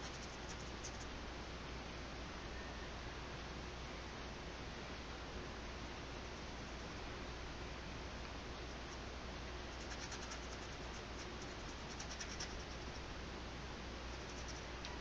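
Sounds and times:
paintbrush scratchy strokes: 9.7s - 13.0s, 14.1s - 14.7s.

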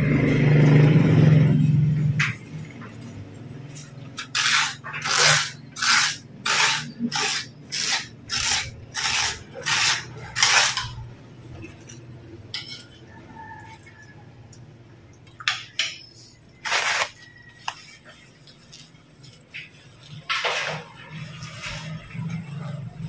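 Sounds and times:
rasping strokes: 4.2s - 11.0s.

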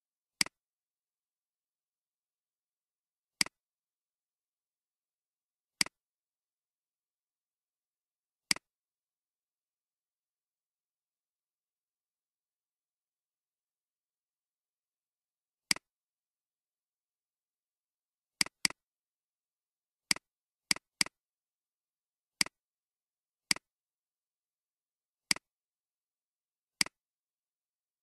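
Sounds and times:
computer mouse clicking: 26.8s - 27.0s.

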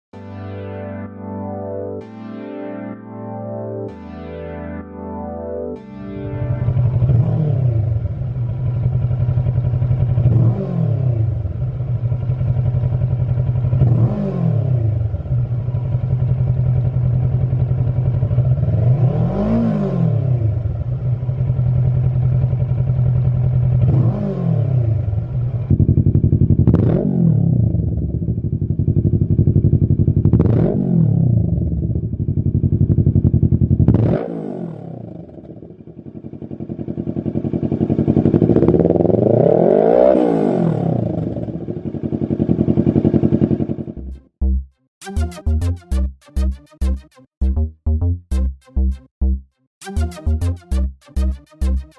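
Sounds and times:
motorcycle engine idling: 6.6s - 7.2s, 7.8s - 10.5s, 11.2s - 13.9s, 15.0s - 18.8s, 20.5s - 24.0s, 24.9s - 26.8s, 27.6s - 30.4s, 31.4s - 33.9s, 35.2s - 39.1s, 41.2s - 44.2s.

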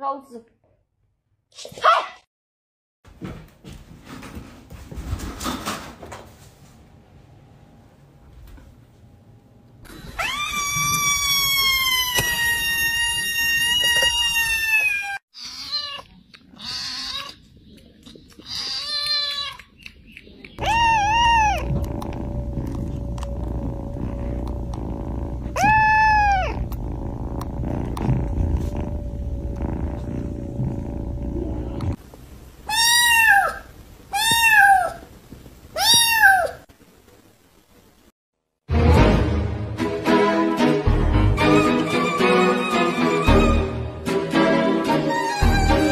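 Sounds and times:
cat yowling: 10.1s - 17.4s, 20.6s - 21.8s, 25.6s - 26.7s, 32.7s - 35.0s, 35.8s - 36.6s, 45.1s - 45.9s
kitten meowing: 10.2s - 17.4s, 20.6s - 21.8s, 25.6s - 26.7s, 32.7s - 35.0s, 35.8s - 36.6s, 45.2s - 45.9s.

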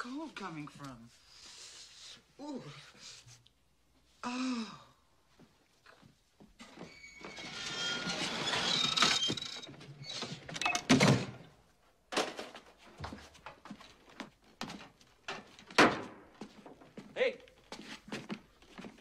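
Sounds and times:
creaks of footsteps on boards: 6.0s - 10.6s
attic ladder creaking and squeaking: 6.6s - 11.1s.

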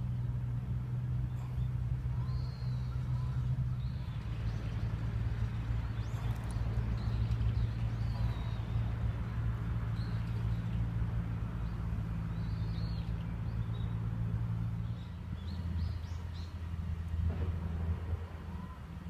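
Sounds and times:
traffic engine hum: 0.0s - 19.0s
faint bird chirps: 1.3s - 4.9s.

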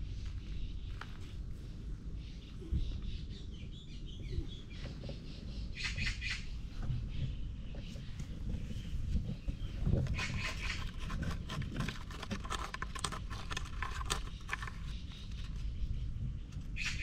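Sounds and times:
cat claws scratching wooden post: 9.9s - 15.7s.

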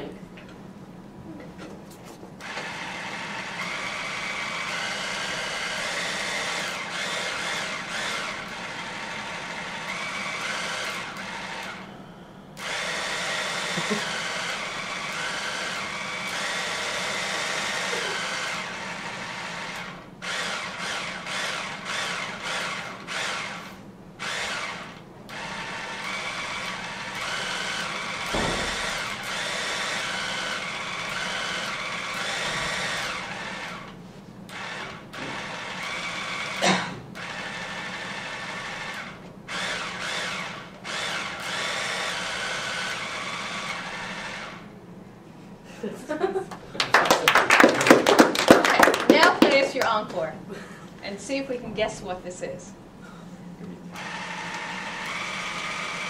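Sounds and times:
hand mixer motor whirring: 2.4s - 44.7s, 53.9s - 56.0s.

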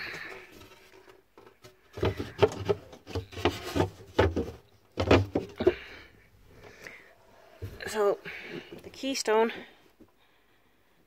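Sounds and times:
dull knocks on wooden fittings: 1.4s - 5.9s.

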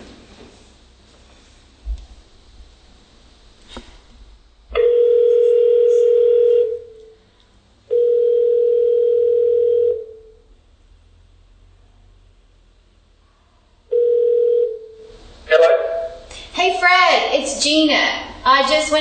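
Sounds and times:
telephone ringing tone: 4.8s - 6.9s, 7.9s - 10.4s, 13.9s - 15.1s.

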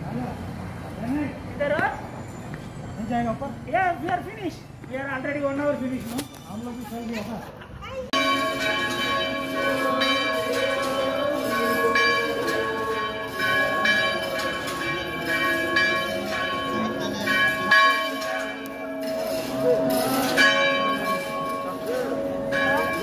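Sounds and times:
church bells ringing: 8.1s - 23.0s.

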